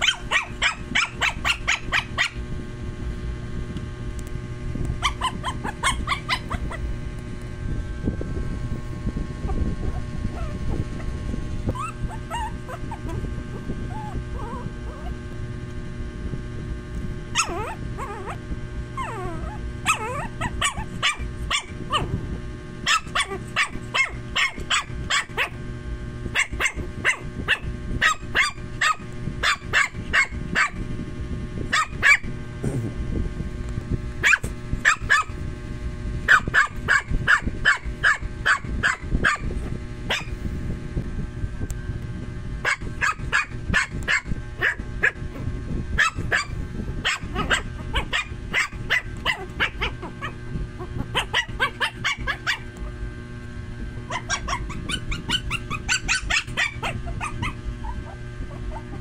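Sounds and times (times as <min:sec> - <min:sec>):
puppy yapping: 0:00.0 - 0:02.4, 0:05.0 - 0:06.8, 0:09.5 - 0:11.1, 0:11.7 - 0:15.2, 0:17.4 - 0:18.4, 0:19.0 - 0:22.1, 0:22.9 - 0:25.6, 0:26.4 - 0:30.8, 0:31.7 - 0:32.3, 0:34.2 - 0:35.3, 0:36.3 - 0:39.5, 0:40.1 - 0:40.3, 0:42.6 - 0:45.2, 0:46.0 - 0:52.7, 0:54.1 - 0:59.0
puppy whining: 0:05.0 - 0:06.9, 0:09.4 - 0:15.3, 0:17.4 - 0:22.1, 0:22.9 - 0:25.5, 0:46.0 - 0:52.7, 0:54.1 - 0:59.0.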